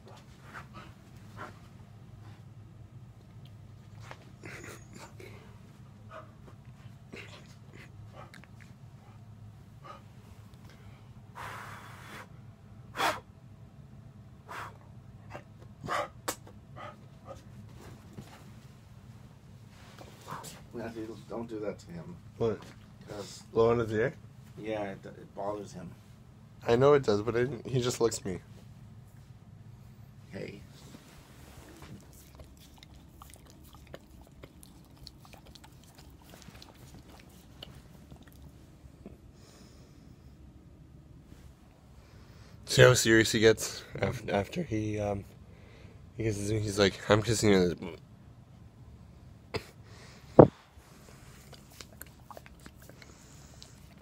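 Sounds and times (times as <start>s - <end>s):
sharp snorts: 12.9s - 13.3s, 14.5s - 14.8s
dog licking clicks and smacks: 32.0s - 38.5s, 51.4s - 54.0s
soft breathing: 39.0s - 40.5s, 41.2s - 42.6s, 45.5s - 46.1s, 52.8s - 54.0s.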